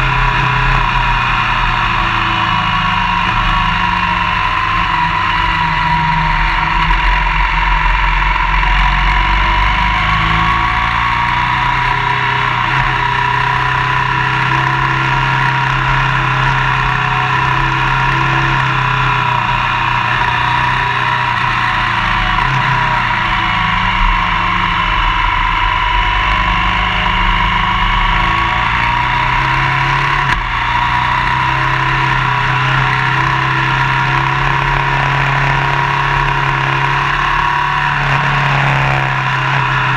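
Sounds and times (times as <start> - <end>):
motorcycle engine: 0.0 - 39.9.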